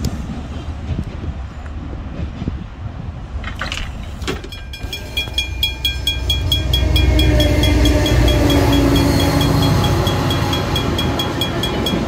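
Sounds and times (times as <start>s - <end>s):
diesel locomotive engine: 0.0s - 12.0s
level crossing bells ringing: 4.5s - 12.0s.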